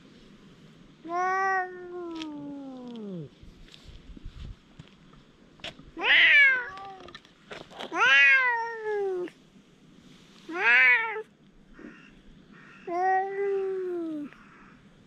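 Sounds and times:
cat meowing: 1.1s - 3.2s, 6.0s - 7.1s, 7.9s - 9.3s, 10.5s - 11.2s, 12.8s - 14.4s.

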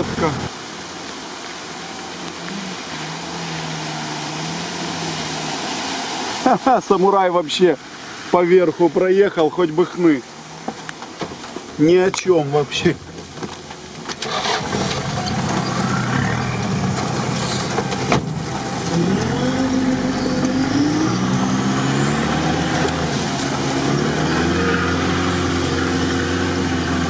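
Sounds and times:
off-road vehicle engine: 0.0s - 7.1s, 9.0s - 27.0s.

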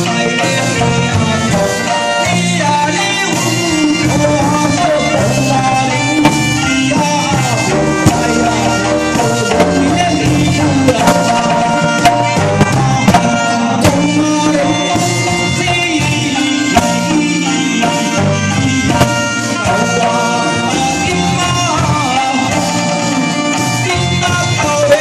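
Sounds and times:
live amplified band: 0.0s - 25.0s
man singing into microphone: 0.0s - 25.0s
sharp drum hits: 3.3s - 21.8s.

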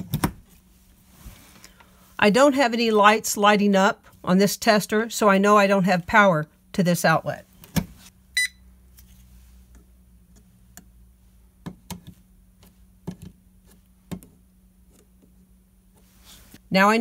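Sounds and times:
short high beep: 8.4s - 8.6s.

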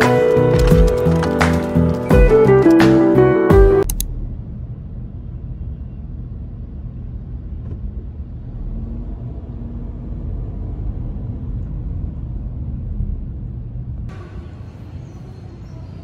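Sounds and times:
car engine and tyre rumble: 3.8s - 16.0s.

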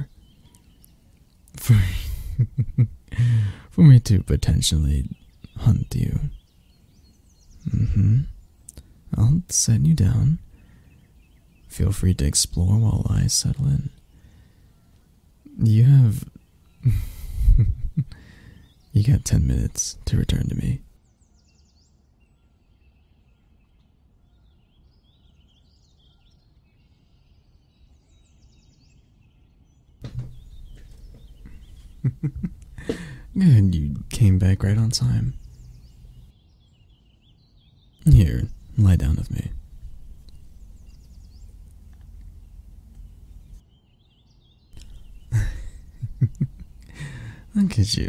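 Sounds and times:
low steady hiss: 0.0s - 48.0s
outdoor background ambience: 0.0s - 48.0s
small birds chirping and trilling: 0.0s - 48.0s
loud breathy sigh: 3.1s - 3.7s, 32.8s - 33.3s, 46.9s - 47.5s.

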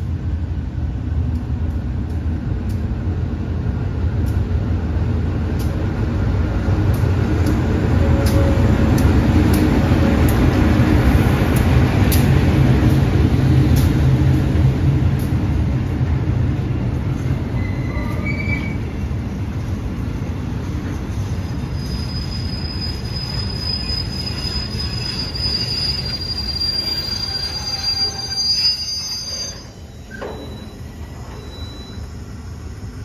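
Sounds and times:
high squeal of train brakes: 17.5s - 18.9s, 20.8s - 32.6s.

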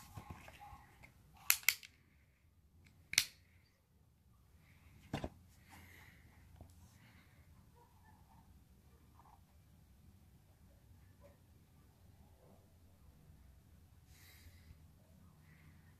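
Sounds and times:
air pistol mechanical clicks: 1.4s - 2.0s, 2.8s - 3.5s.

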